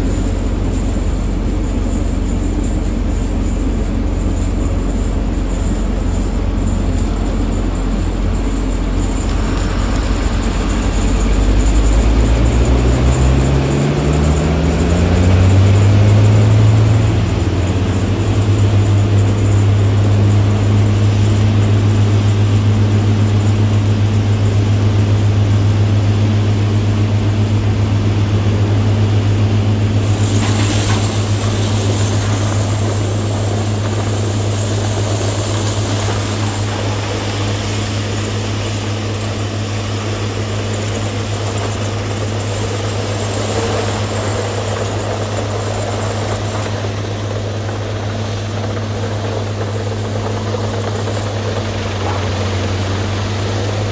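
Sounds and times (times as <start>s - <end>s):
heavy machinery deep drone: 0.0s - 53.9s
steady hiss: 29.8s - 53.9s.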